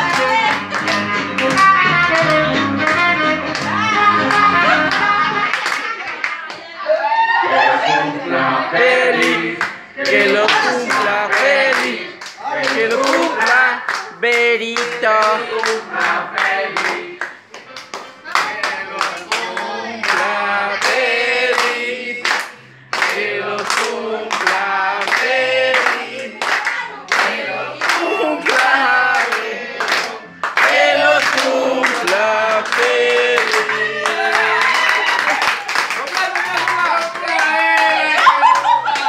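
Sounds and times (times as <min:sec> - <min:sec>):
people clapping in time: 0:00.0 - 0:06.7, 0:09.2 - 0:39.0
group singing: 0:06.7 - 0:35.2.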